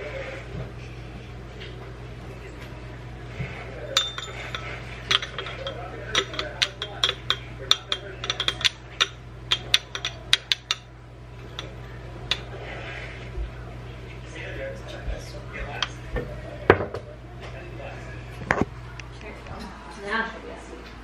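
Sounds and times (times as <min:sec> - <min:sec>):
glass jar clinking against metal cup: 0:04.0 - 0:12.5.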